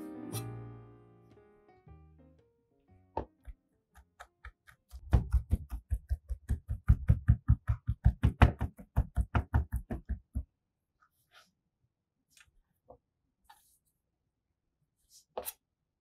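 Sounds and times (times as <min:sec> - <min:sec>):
knife chopping on cutting board: 0:04.0 - 0:10.3.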